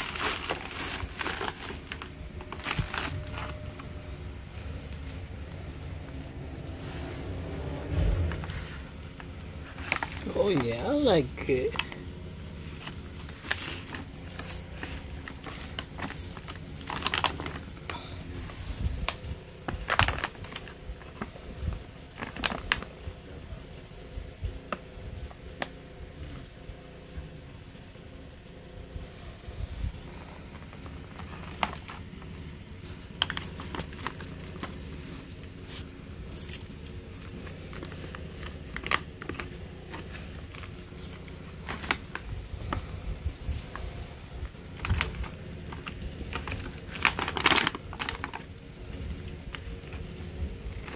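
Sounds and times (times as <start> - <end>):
plastic bags crinkling: 0.0 - 6.3, 8.4 - 18.0, 19.0 - 21.4, 22.1 - 22.9, 30.1 - 42.8, 43.7 - 50.0, 50.6 - 50.9
steady low hum: 0.0 - 50.9.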